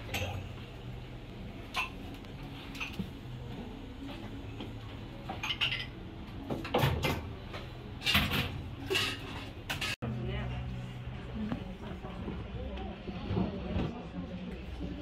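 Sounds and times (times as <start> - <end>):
cutlery clinking on dishes: 5.3 - 6.0.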